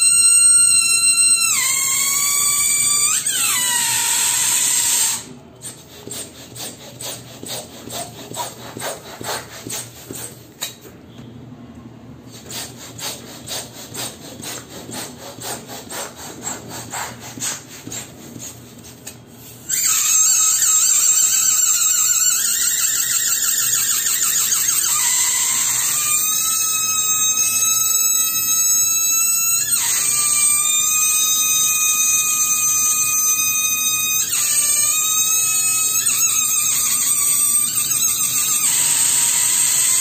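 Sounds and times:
balloon squealing air: 0.0s - 10.4s, 12.3s - 40.0s
rubber rubbing: 3.0s - 10.8s.

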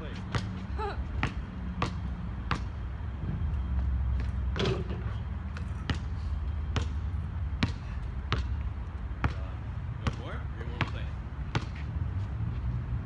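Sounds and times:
basketball dribbling on court: 1.2s - 2.7s, 6.7s - 7.0s, 7.6s - 8.6s, 9.2s - 11.8s.

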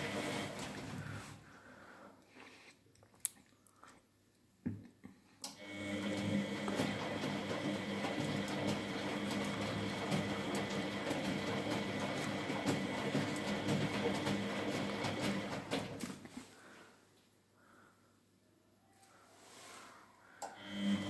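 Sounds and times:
washing machine motor hum: 0.0s - 1.4s, 5.6s - 16.1s, 20.5s - 21.0s
laundry tumbling in water: 6.0s - 16.2s.

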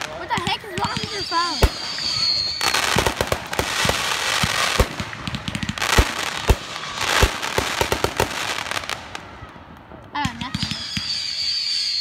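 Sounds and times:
fireworks booms: 0.0s - 11.2s
fireworks crackling: 0.0s - 12.0s.

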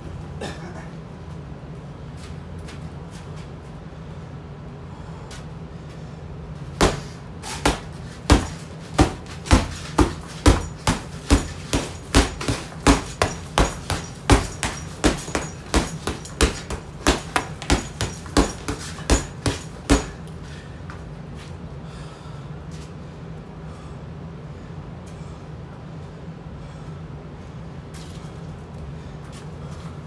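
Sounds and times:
punches thudding on heavy bag: 6.7s - 20.3s.

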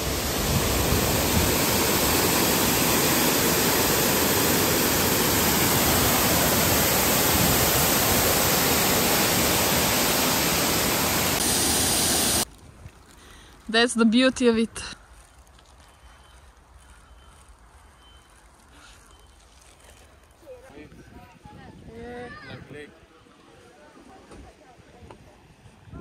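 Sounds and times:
water rushing down a shaft: 0.0s - 12.5s.

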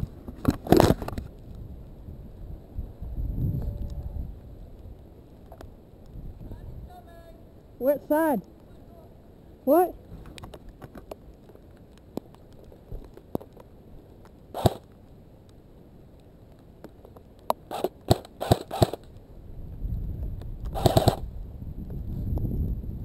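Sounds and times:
low wind rumble on microphone: 0.0s - 7.8s, 19.0s - 23.0s
sharp clicks and snaps: 10.2s - 19.2s, 20.2s - 21.3s.

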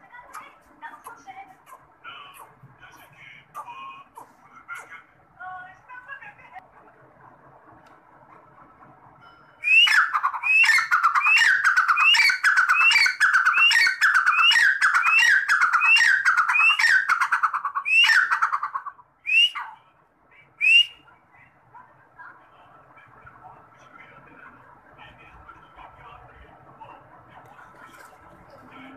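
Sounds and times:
partridge calling harsh notes: 9.6s - 19.8s.

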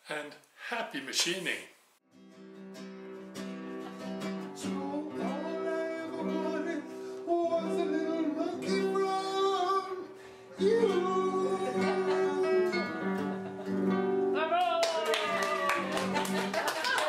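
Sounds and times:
strummed acoustic guitar: 2.1s - 14.4s
man singing: 4.6s - 13.2s.

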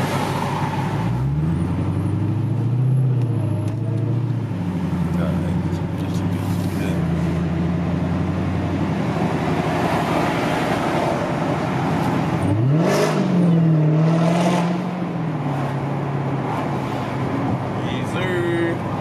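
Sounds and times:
car engine from inside cabin: 1.6s - 10.8s.

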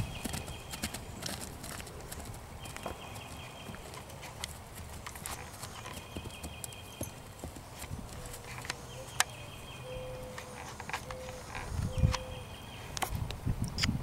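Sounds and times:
hooves thudding on grass: 0.0s - 12.3s.

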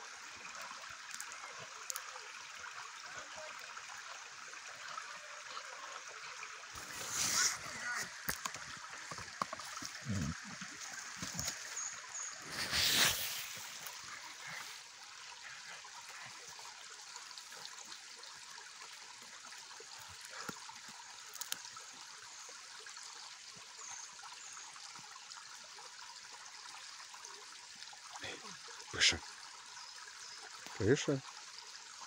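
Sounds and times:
creek water trickling over stones: 0.0s - 32.0s
short rustling noise: 12.4s - 13.9s.

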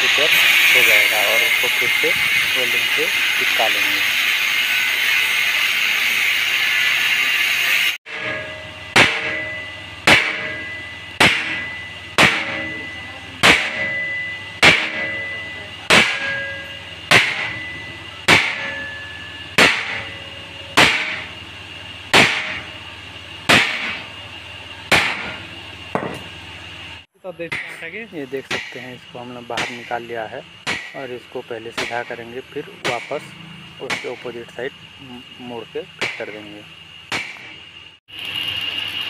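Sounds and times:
hammer on metal bars: 8.1s - 21.3s, 22.1s - 22.7s, 23.5s - 24.1s, 24.9s - 26.3s, 27.5s - 34.4s.

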